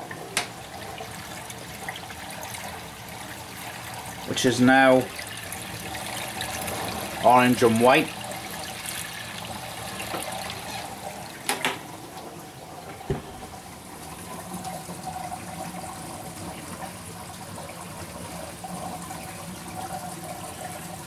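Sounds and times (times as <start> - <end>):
water running and splashing: 0.0 - 21.0
double knock: 13.1 - 13.6.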